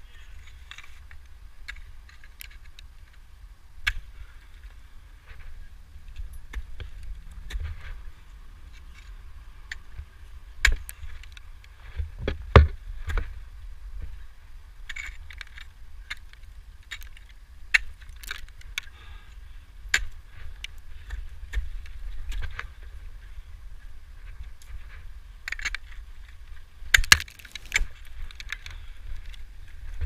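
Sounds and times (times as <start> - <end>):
metal climbing gear clinking: 14.9 - 18.9, 25.4 - 29.4.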